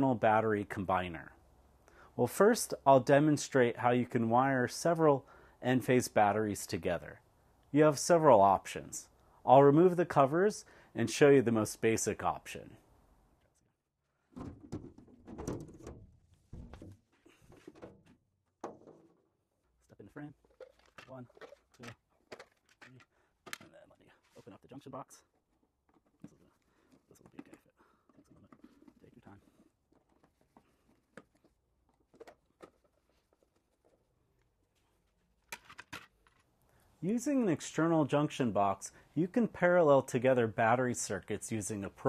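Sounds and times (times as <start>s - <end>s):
panel knocks scrapes and rattles: 14.4s - 19.2s.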